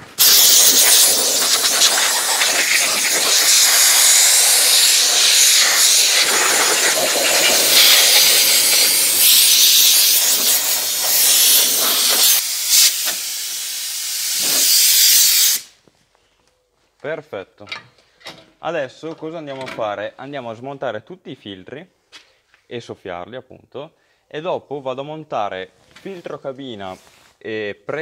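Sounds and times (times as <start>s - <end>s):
compressed air hissing: 0.0s - 15.8s.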